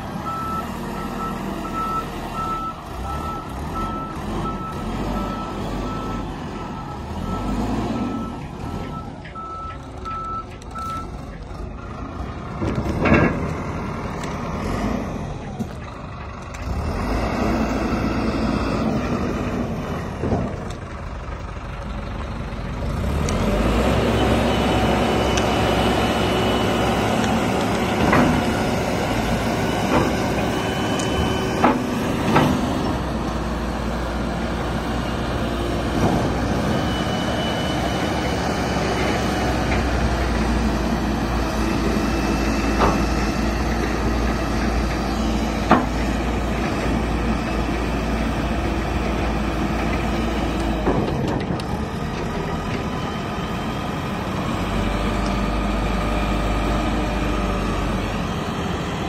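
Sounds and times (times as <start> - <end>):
diesel engine running: 0.0 - 59.0
reversing alarm beeping: 0.2 - 11.2, 34.9 - 40.2.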